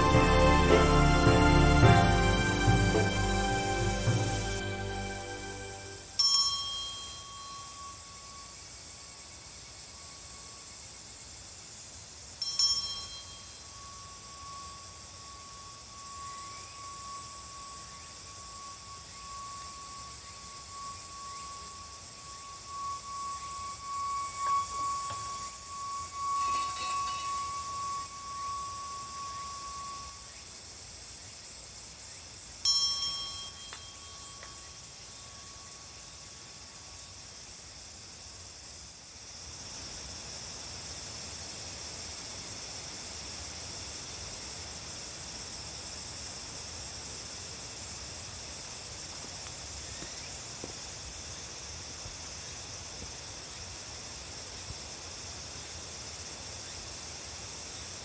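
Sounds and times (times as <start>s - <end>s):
bell-like chime ringing: 0.0s - 9.2s, 12.4s - 30.5s, 32.6s - 36.4s
high insect drone: 0.0s - 58.0s.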